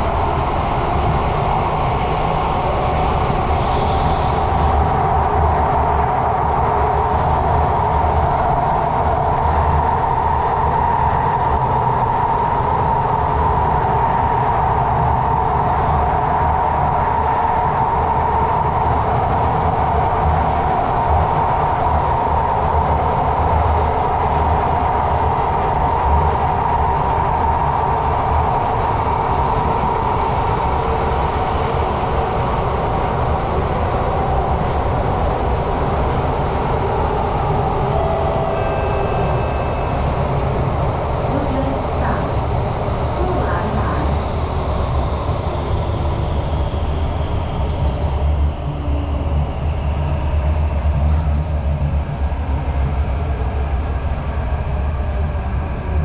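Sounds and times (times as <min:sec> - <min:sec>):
drive whine: 0:25.7 - 0:53.9.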